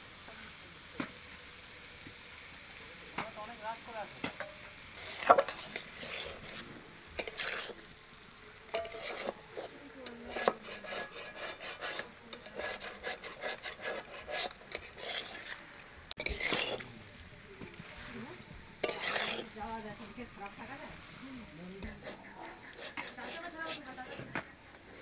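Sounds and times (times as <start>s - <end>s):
metal spatula scraping a pan: 4.2s - 7.9s, 8.7s - 17.2s, 17.8s - 21.1s, 21.8s - 25.0s.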